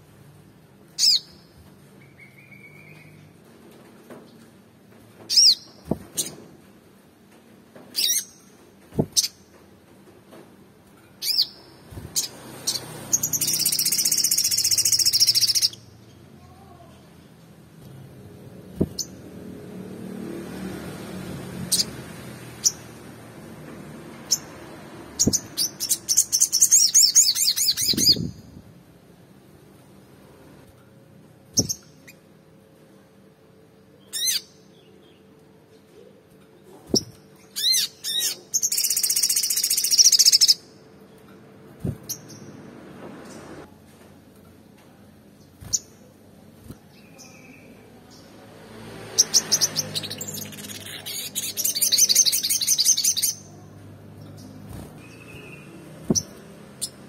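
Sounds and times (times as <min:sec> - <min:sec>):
sunbird chirping and trilling: 0:00.9 - 0:03.3, 0:05.3 - 0:06.4, 0:08.0 - 0:08.5, 0:11.2 - 0:16.8, 0:21.6 - 0:23.0, 0:24.2 - 0:28.5, 0:34.0 - 0:35.3, 0:36.9 - 0:41.2, 0:41.9 - 0:43.5, 0:46.9 - 0:57.0.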